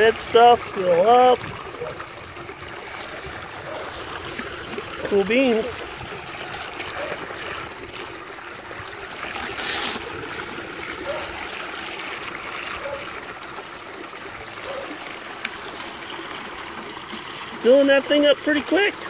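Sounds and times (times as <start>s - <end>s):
water rushing and splashing: 0.0s - 19.0s.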